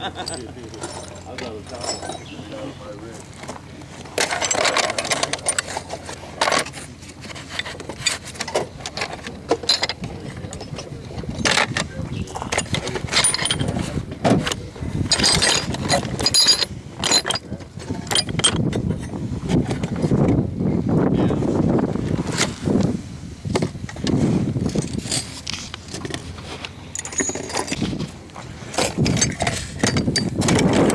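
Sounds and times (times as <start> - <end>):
metal pieces ringing: 0.0 - 2.6, 15.1 - 17.4, 26.9 - 27.9
metal tools clinking in a box: 0.0 - 20.2, 24.6 - 26.2, 26.9 - 30.9.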